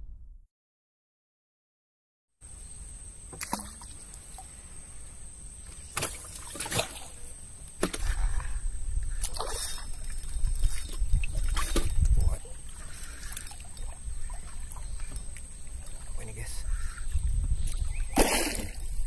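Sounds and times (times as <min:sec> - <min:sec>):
water lapping: 0:05.8 - 0:19.0.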